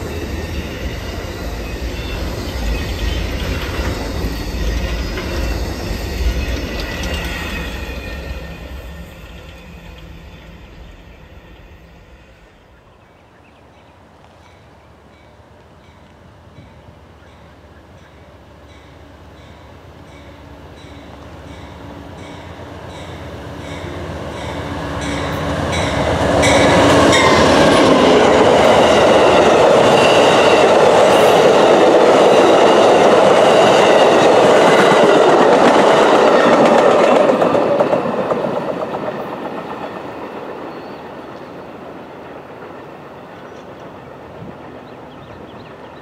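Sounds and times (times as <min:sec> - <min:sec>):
locomotive engine passing: 0:00.0 - 0:46.0
train wheels rushing on rail: 0:00.0 - 0:46.0
train wheel clicks: 0:03.3 - 0:07.8.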